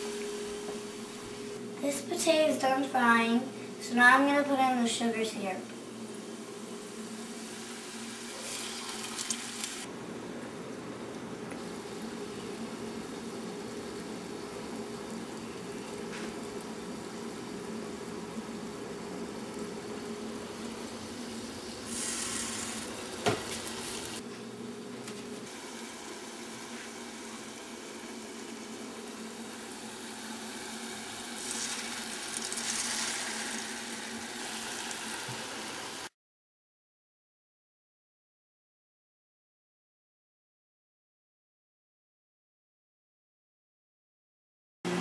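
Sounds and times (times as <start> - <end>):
dumplings sizzling in oil: 5.8 - 9.9, 11.6 - 24.2, 25.5 - 36.1.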